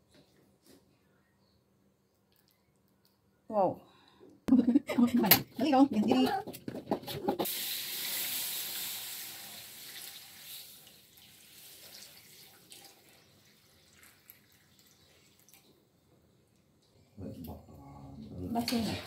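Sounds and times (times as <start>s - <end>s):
water pouring and splashing into wok: 7.4s - 15.6s.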